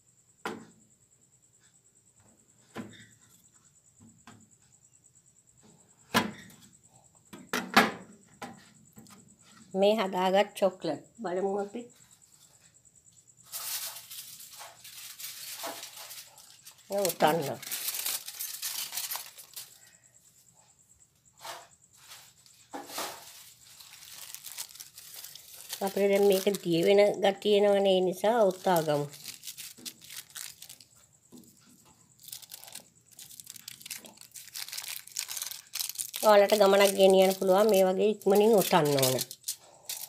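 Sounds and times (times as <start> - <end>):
aluminium foil rustling: 13.4 - 20.0, 22.0 - 40.0.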